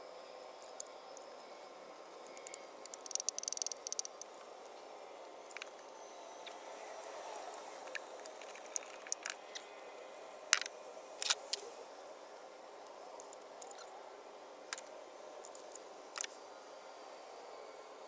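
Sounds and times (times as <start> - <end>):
faint steady background noise: 0.0 - 18.0
hand tools clicking and clinking: 2.4 - 4.2.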